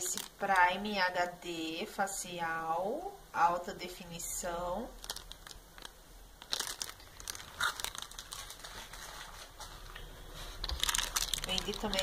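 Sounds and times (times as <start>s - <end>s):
plastic wrapping crinkling: 0.0s - 1.0s, 4.9s - 12.0s.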